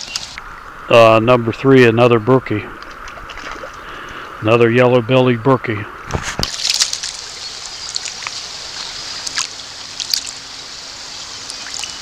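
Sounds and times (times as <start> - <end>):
stream rushing: 0.0 - 4.5, 6.0 - 12.0
fish splashing in shallow water: 2.8 - 4.2, 6.2 - 12.0.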